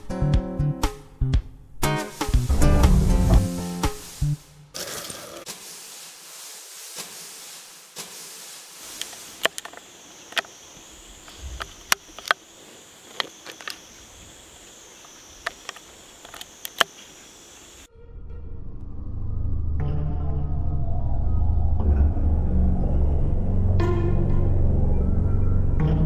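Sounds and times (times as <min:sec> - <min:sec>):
light hiss: 0:02.0 - 0:17.9
insect buzzing: 0:02.2 - 0:17.9.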